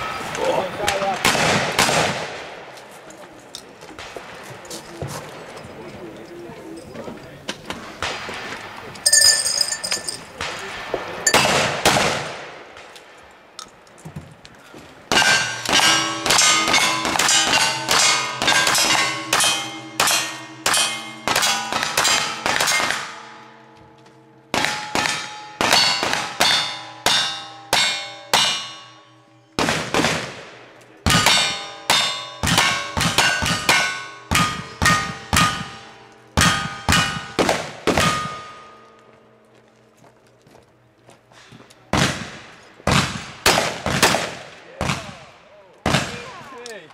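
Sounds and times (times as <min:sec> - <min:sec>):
gunshots: 0:00.9 - 0:02.6, 0:10.3 - 0:12.9, 0:15.1 - 0:23.3, 0:24.5 - 0:28.6, 0:29.6 - 0:35.8, 0:36.4 - 0:38.5, 0:41.9 - 0:46.3
steel targets ringing: 0:09.0 - 0:10.4, 0:11.2 - 0:11.7, 0:15.1 - 0:29.6, 0:31.1 - 0:39.2.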